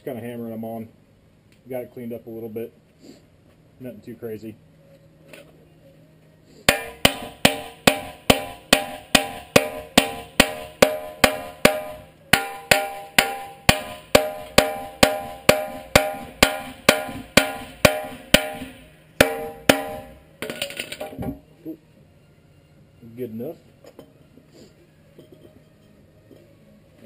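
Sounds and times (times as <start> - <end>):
hammer ringing on metal: 6.7 - 20.7.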